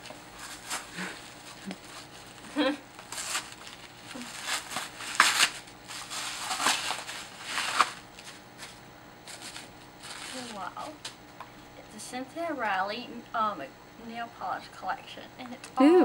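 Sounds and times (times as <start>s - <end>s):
wrapping paper crinkling and tearing: 0.4s - 11.0s.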